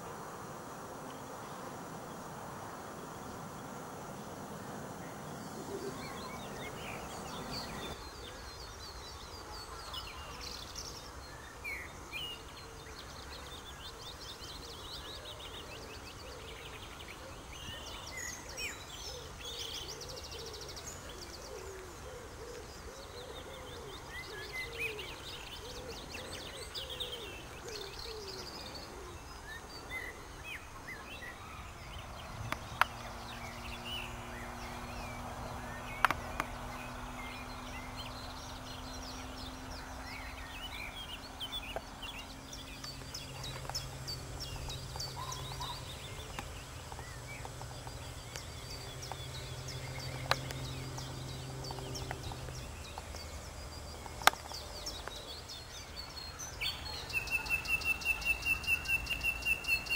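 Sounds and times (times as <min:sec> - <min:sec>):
low hooting call: 0:00.0 - 0:08.0
birds chirping and warbling: 0:00.0 - 0:59.9
steady background hiss: 0:00.0 - 0:59.9.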